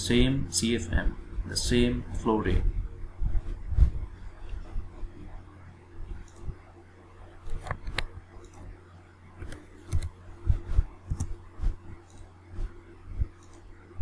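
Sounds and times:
faint steady hum: 0:00.0 - 0:14.0
computer mouse clicks: 0:06.2 - 0:06.6, 0:07.4 - 0:08.7, 0:09.4 - 0:10.2, 0:11.1 - 0:11.4, 0:12.0 - 0:12.3, 0:13.4 - 0:13.7.

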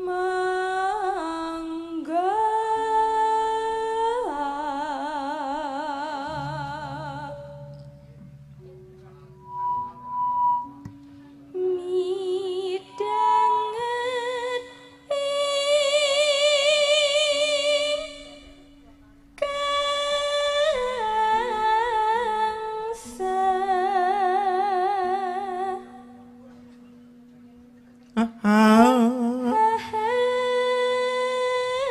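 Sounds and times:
woman singing with vibrato: 0:00.0 - 0:07.7, 0:11.5 - 0:18.8, 0:19.4 - 0:26.3, 0:28.2 - 0:31.9
faint steady low note: 0:06.2 - 0:11.9.

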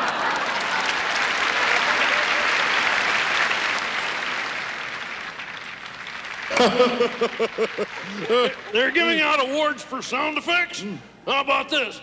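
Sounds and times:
large audience applauding: 0:00.0 - 0:09.2.

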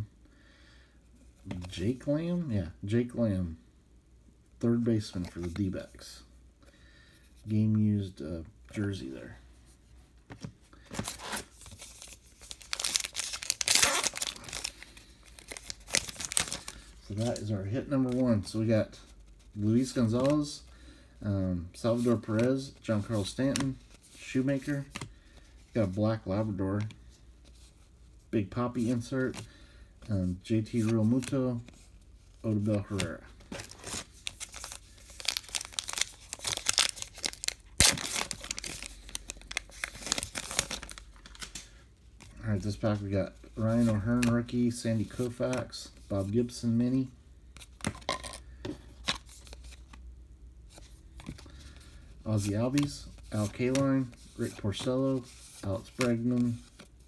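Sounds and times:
wrapper crinkling and tearing: 0:11.0 - 0:17.4, 0:32.9 - 0:41.7.

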